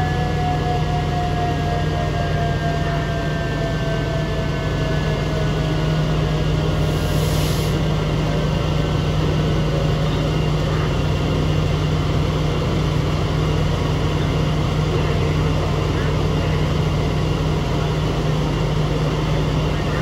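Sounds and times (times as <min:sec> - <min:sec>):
fire engine engine running: 0:00.0 - 0:20.0.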